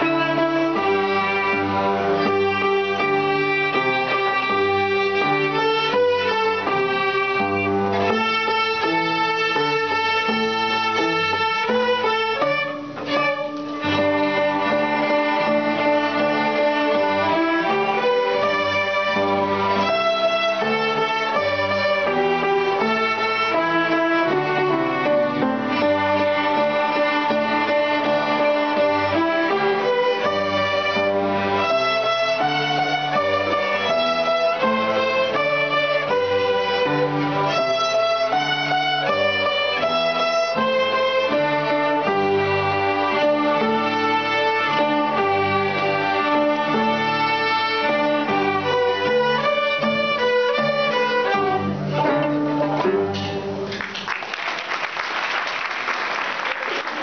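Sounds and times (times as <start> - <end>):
violin ensemble playing: 0.0 - 53.8
audience applause: 53.7 - 57.0.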